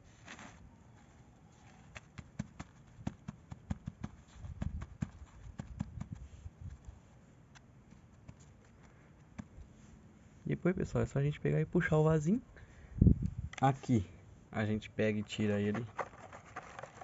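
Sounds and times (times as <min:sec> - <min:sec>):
hand patting soil in pot: 0:00.0 - 0:10.0.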